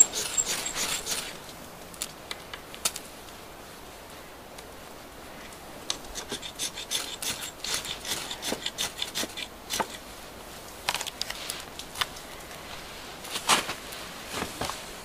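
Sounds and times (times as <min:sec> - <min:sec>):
fire steel scraped with striker: 0:00.0 - 0:01.4, 0:06.1 - 0:10.0.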